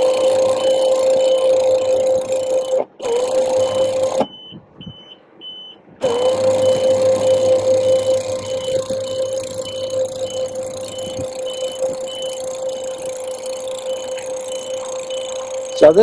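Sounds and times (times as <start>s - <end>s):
hydraulic pump whining: 0.0s - 4.6s, 6.0s - 16.0s
short high electronic beep: 6.0s - 16.0s.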